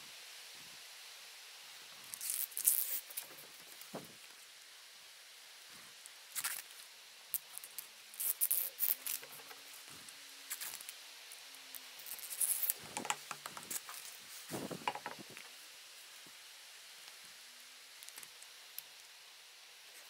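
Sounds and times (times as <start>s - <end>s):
soft knocks: 14.7s - 15.2s.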